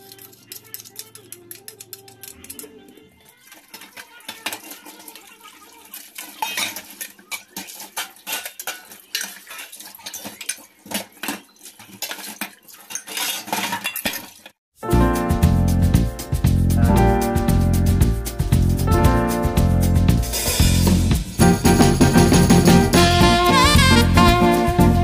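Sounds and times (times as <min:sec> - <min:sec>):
metal pots clattering in sink: 0:00.0 - 0:14.6
tap water running: 0:03.2 - 0:12.9.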